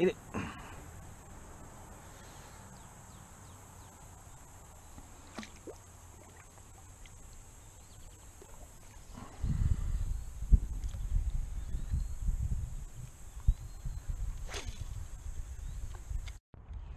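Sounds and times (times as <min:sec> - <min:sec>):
fish splashing into water: 0:05.2 - 0:07.2
low rumbling on microphone: 0:08.9 - 0:16.9.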